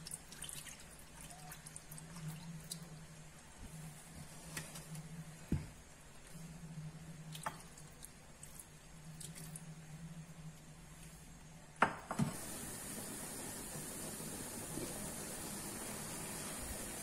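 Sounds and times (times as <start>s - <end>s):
steady hiss: 9.7s - 17.0s.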